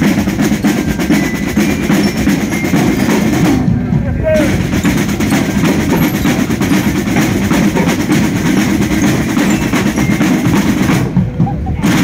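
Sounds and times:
marching snare drums: 0:00.0 - 0:12.0.

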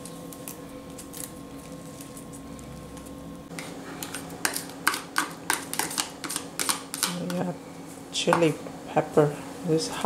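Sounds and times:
spoon scraping plastic cup: 0:05.5 - 0:07.2.

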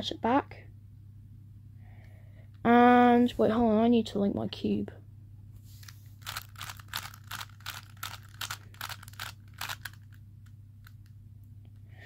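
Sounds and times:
puzzle cube plastic clicking: 0:06.2 - 0:11.2.

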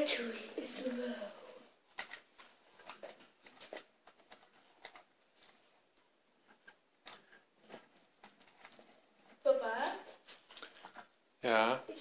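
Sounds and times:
plastic toy bricks clicking: 0:01.9 - 0:05.1.

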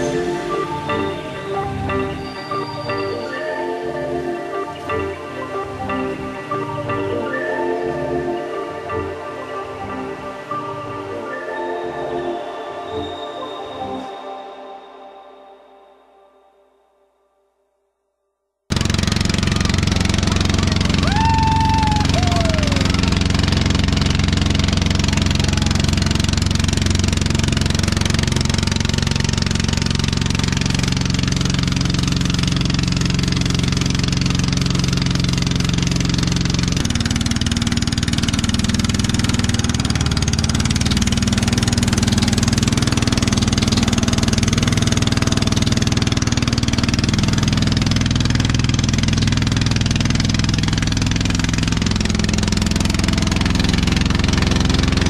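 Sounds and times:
boat engine running: 0:00.0 - 0:11.4, 0:18.7 - 0:55.0
water rushing: 0:18.7 - 0:55.0.

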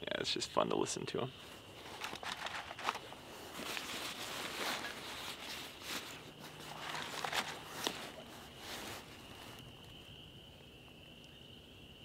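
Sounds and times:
rustling and crackling in dry brush: 0:01.4 - 0:10.5
high-pitched frog chorus trilling: 0:04.8 - 0:12.0.

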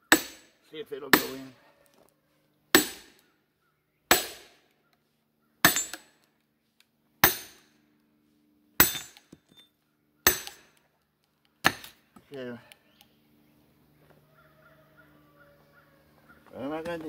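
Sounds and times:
hammer striking steel wedge: 0:00.0 - 0:01.4, 0:02.7 - 0:03.2, 0:04.1 - 0:04.6, 0:05.6 - 0:06.2, 0:07.2 - 0:07.7, 0:08.8 - 0:09.4, 0:10.2 - 0:10.8, 0:11.6 - 0:12.0.

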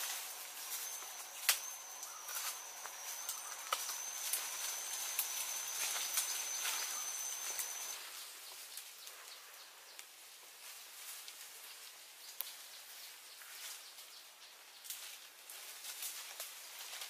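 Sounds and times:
high-pitched insect tone: 0:00.0 - 0:08.2.

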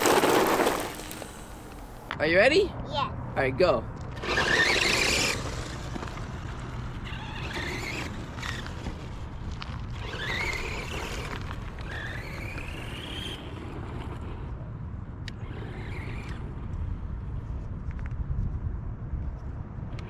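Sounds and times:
electric motor whining: 0:04.1 - 0:13.8.

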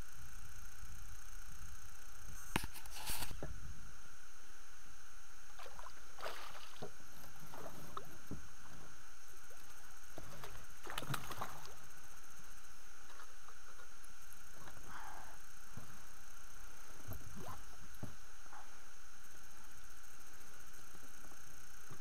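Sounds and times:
steady hiss: 0:00.0 - 0:22.0
water splashing: 0:05.6 - 0:08.8, 0:10.2 - 0:11.8.

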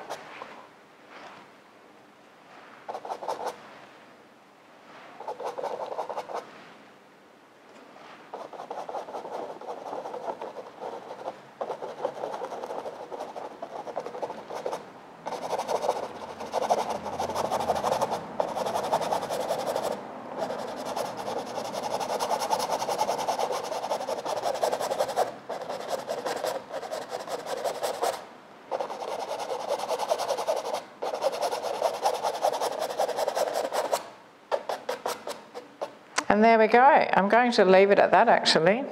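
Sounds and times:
paintbrush rasping on canvas: 0:02.9 - 0:03.6, 0:05.2 - 0:06.5, 0:08.4 - 0:36.0.

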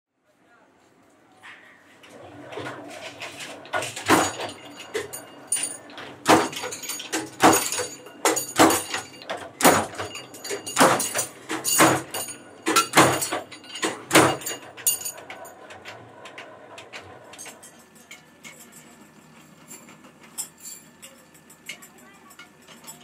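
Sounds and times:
ringing metal clatter: 0:03.3 - 0:16.4.

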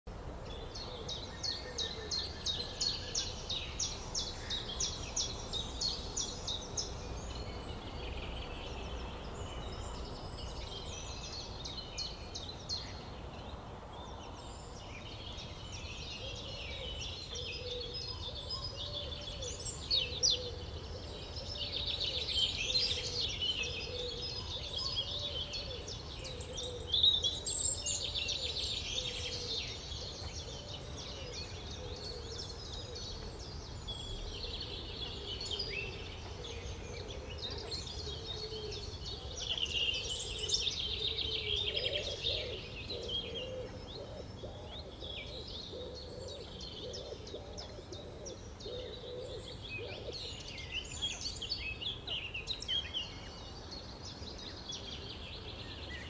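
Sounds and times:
songbirds singing: 0:00.1 - 0:56.0.

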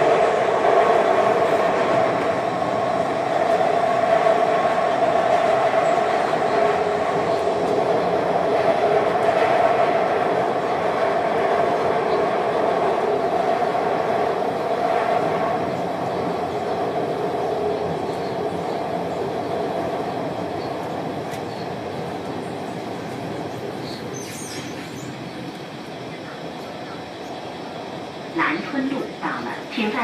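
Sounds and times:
train rumbling in tunnel: 0:00.0 - 0:30.0.

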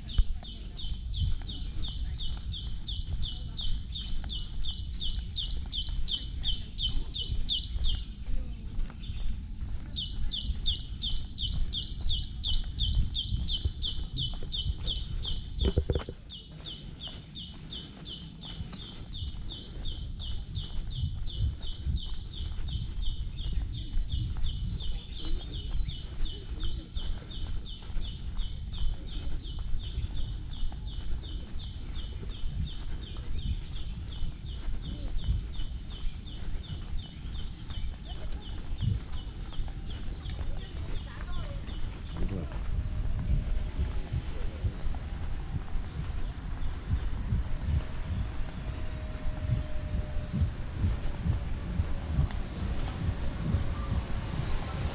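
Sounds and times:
low rumble: 0:00.0 - 0:54.9.

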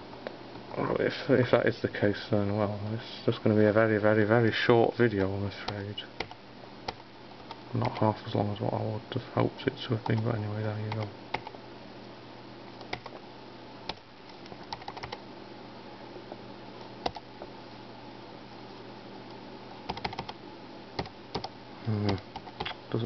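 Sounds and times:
laptop keys clicking: 0:12.8 - 0:13.1, 0:13.9 - 0:15.2, 0:17.0 - 0:17.2, 0:19.9 - 0:20.4, 0:21.0 - 0:21.5.

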